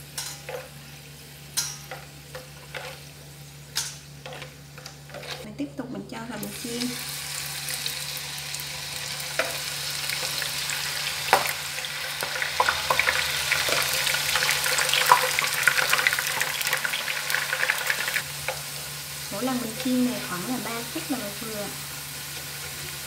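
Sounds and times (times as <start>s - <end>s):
food deep-frying in oil: 6.4s - 23.0s.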